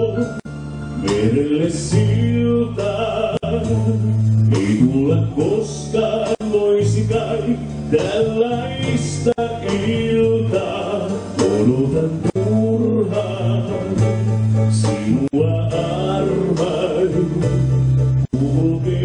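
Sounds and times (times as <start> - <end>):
drums: 0.0 - 19.0
electric bass: 0.0 - 19.0
keyboards: 0.0 - 19.0
man singing: 0.0 - 19.0.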